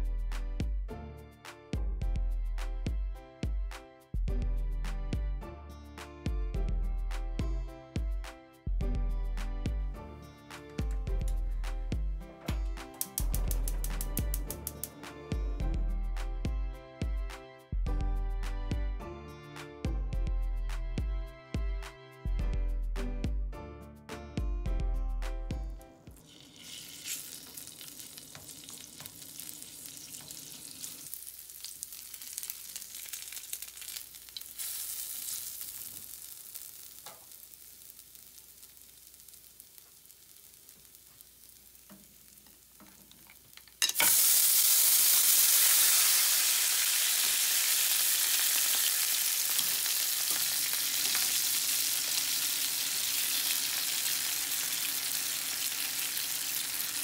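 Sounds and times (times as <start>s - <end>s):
broth sizzling and bubbling: 26.2s - 43.4s
garlic sizzling in oil: 26.2s - 57.0s.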